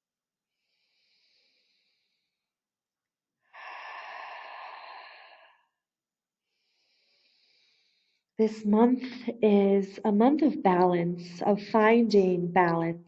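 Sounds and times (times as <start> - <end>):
woman breathing out: 3.5 - 5.8.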